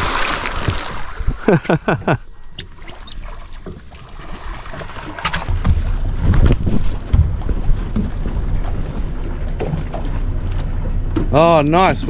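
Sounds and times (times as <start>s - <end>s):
water slapping boat: 0.0s - 12.0s
wind on microphone: 5.4s - 9.8s.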